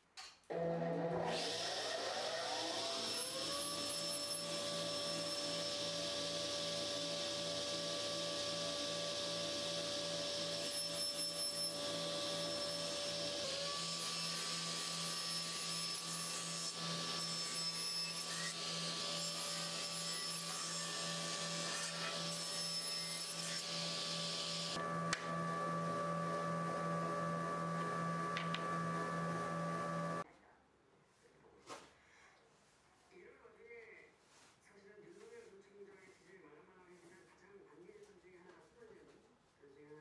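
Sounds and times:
table saw motor whine: 0.5s - 30.2s
saw blade cutting wood: 1.3s - 30.2s.

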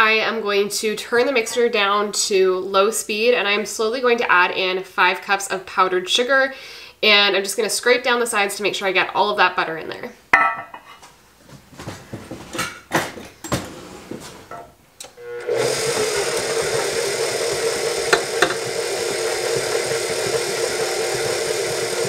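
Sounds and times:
stand mixer running: 15.1s - 22.0s.

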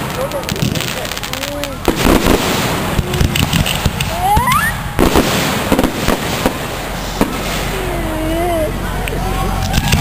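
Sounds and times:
firework bangs and crackles: 0.0s - 10.0s
rising firework whistle: 1.8s - 8.7s.

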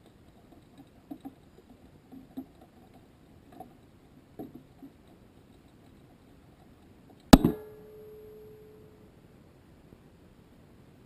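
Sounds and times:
faint knocks and ticks: 0.0s - 7.4s
low hiss: 0.0s - 11.0s.

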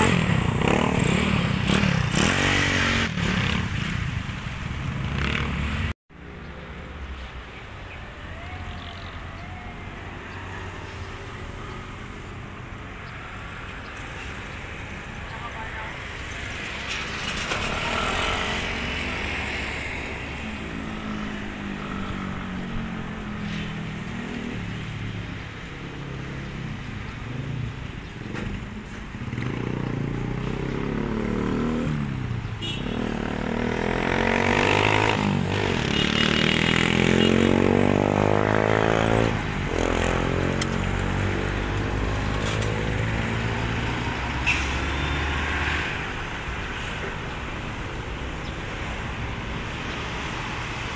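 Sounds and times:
road traffic: 0.0s - 50.9s
diesel truck passing: 33.3s - 50.9s.

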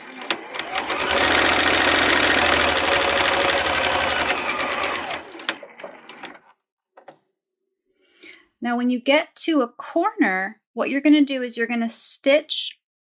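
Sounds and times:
sewing machine stitching: 0.0s - 6.6s.

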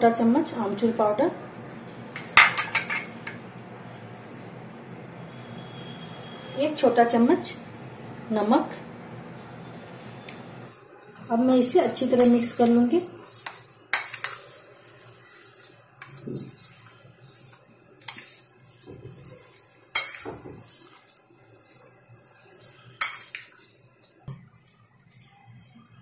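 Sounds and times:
spoon clinking against bowl: 2.2s - 3.4s, 13.4s - 14.5s, 19.9s - 20.7s, 23.0s - 23.6s
spoon mashing in ceramic bowl: 11.0s - 25.9s.

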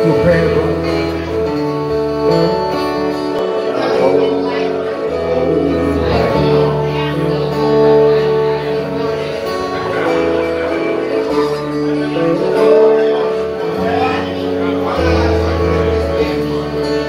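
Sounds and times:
acoustic guitar: 0.0s - 17.0s
man singing into a microphone: 3.5s - 17.0s.

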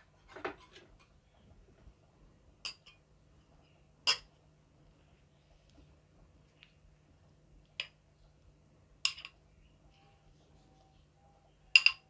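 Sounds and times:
utensil clinking against dish: 11.8s - 12.0s.

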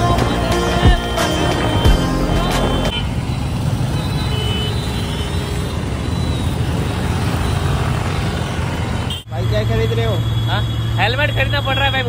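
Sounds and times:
music: 0.0s - 2.9s
road traffic rumble: 0.0s - 12.0s.

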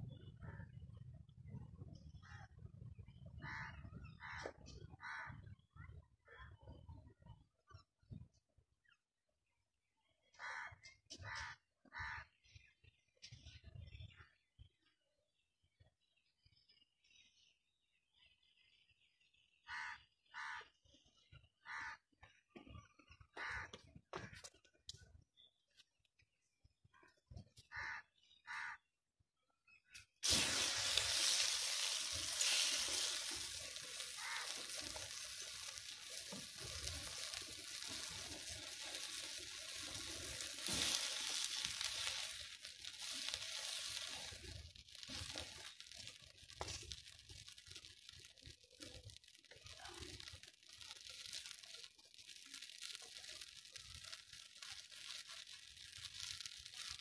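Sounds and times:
burning petrol hissing and sizzling: 30.0s - 57.0s.

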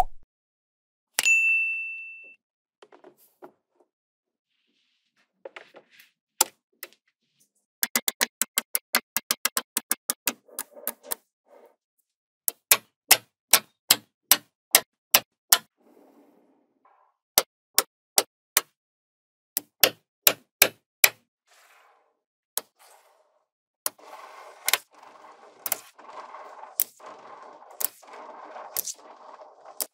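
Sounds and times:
magnetic balls clicking: 23.9s - 29.9s.

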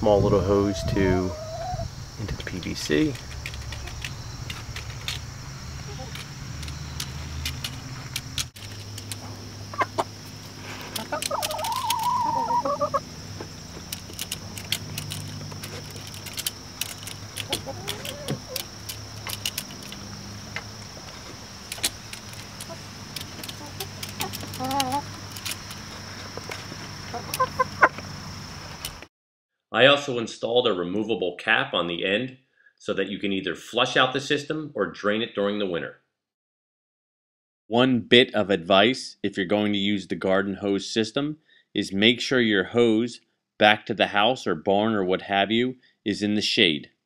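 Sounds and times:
hens clucking: 0.3s - 5.2s, 5.8s - 6.8s, 8.8s - 28.9s
beaks pecking drinker pins: 2.2s - 29.0s.

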